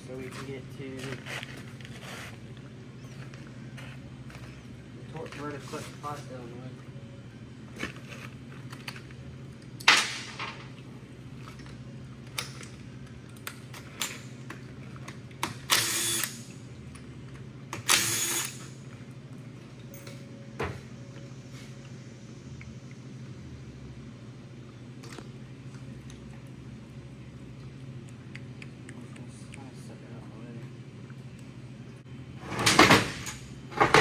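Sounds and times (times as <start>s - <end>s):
steady low hum: 0.0s - 34.0s
cordless drill bursts: 15.7s - 16.3s, 17.9s - 18.6s.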